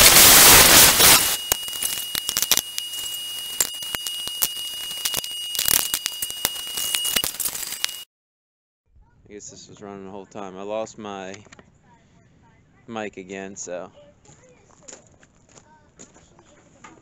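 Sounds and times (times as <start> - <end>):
plasma cutter arc hissing: 0.0 - 4.0
crackling and ticking: 0.0 - 8.0
thin steady high tone: 0.0 - 8.0.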